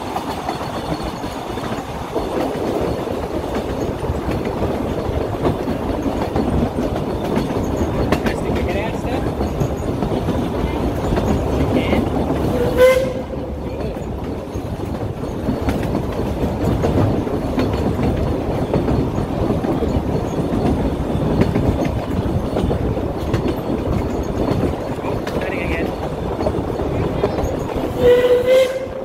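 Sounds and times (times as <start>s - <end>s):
train wheels clattering on rails: 0.0s - 29.0s
steam train whistle toot: 12.5s - 13.4s, 27.9s - 29.0s.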